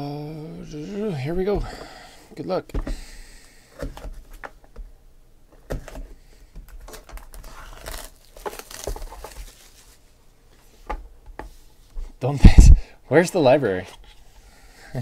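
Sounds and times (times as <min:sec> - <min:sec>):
plastic wrap crinkling and tearing: 0:06.8 - 0:10.0.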